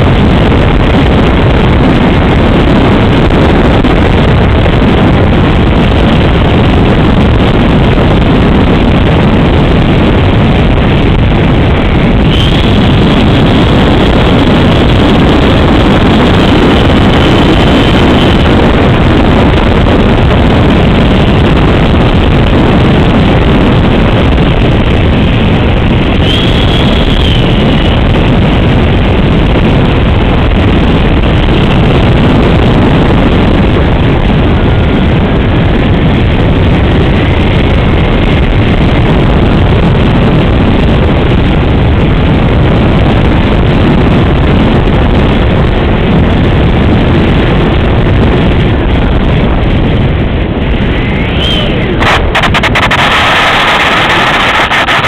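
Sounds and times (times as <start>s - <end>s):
electric ducted fan rushing: 0.0s - 55.0s
wind on microphone: 0.0s - 55.0s
faint high whine rising: 51.0s - 55.0s.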